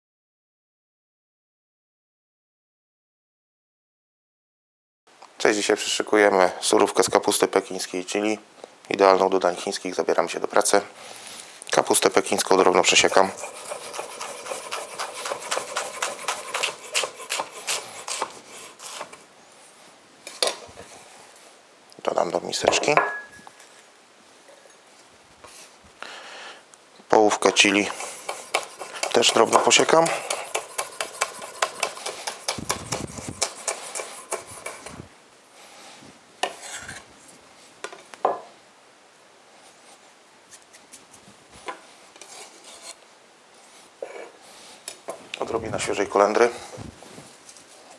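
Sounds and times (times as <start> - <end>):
knife chopping on wooden board: 13.4 - 19.1, 28.0 - 34.9.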